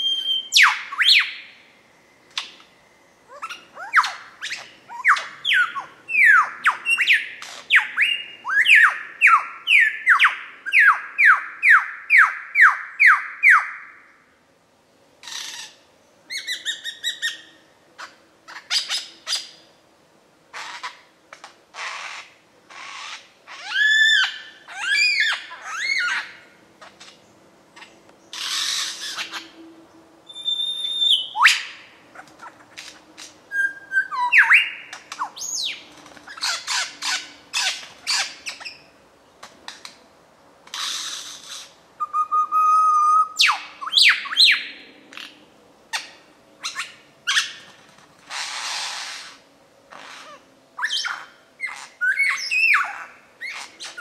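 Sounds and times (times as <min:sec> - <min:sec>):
lyrebird singing mimicked calls: 0:30.3 - 0:32.8.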